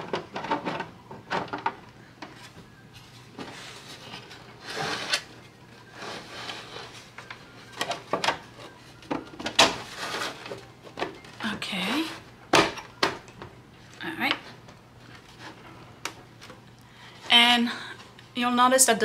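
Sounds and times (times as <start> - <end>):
plastic scraping on plastic: 0.0 - 13.2.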